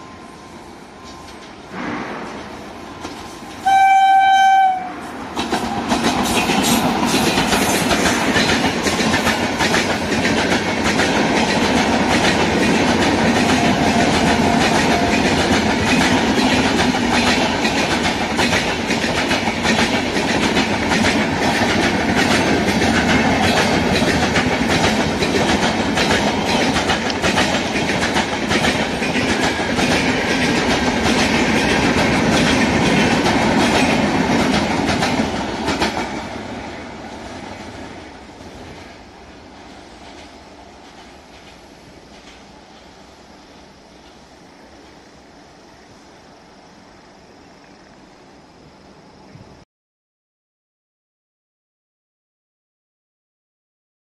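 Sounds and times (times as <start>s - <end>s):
passenger train rushing past: 0.0s - 47.2s
locomotive horn blast: 3.6s - 5.1s
wheels clacking over rail joints: 5.2s - 39.0s, 39.6s - 43.0s.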